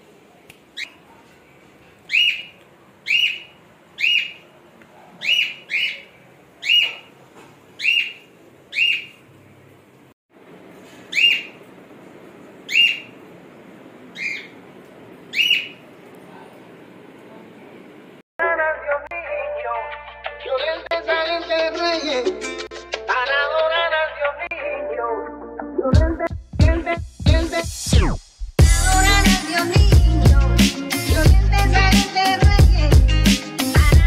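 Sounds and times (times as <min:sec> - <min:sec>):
bird chirping sharply: 0:02.1 - 0:04.4, 0:05.2 - 0:07.1, 0:07.8 - 0:09.2, 0:11.1 - 0:11.6, 0:12.7 - 0:13.2, 0:14.1 - 0:14.6, 0:15.3 - 0:15.8.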